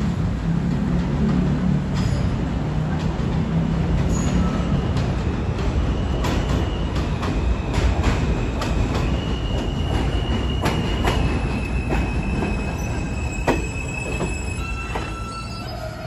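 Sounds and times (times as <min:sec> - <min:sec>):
train rumble: 0:00.0 - 0:16.0
high wheel squeal: 0:04.1 - 0:05.0, 0:05.8 - 0:16.0.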